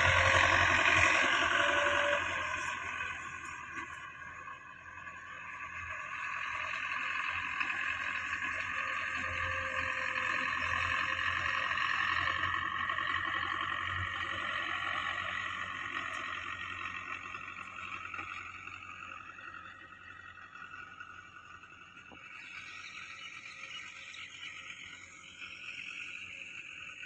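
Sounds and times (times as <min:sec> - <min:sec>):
tractor diesel engine running: 0:00.0 - 0:27.0.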